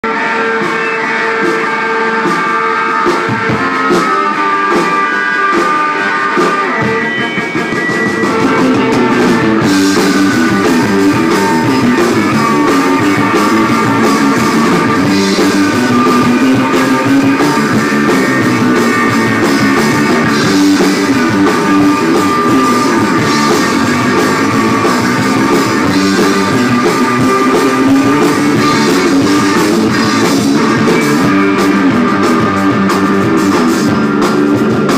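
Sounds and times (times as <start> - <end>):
bass guitar: 0.0 - 34.9
drums with cymbals: 0.0 - 34.9
electric guitar: 0.0 - 34.9.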